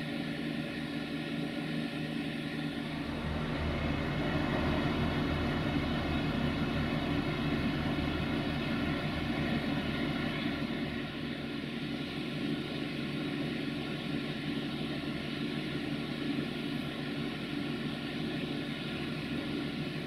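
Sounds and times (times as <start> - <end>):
railway engine drone: 0.0 - 20.0
low throbbing: 2.6 - 11.9.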